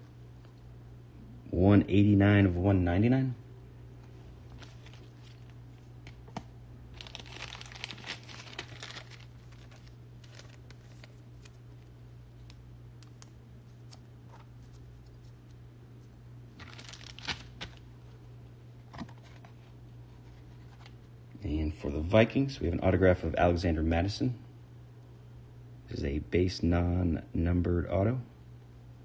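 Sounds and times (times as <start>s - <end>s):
steady low hum: 0.0s - 29.0s
cards rustling and sliding: 4.5s - 15.6s.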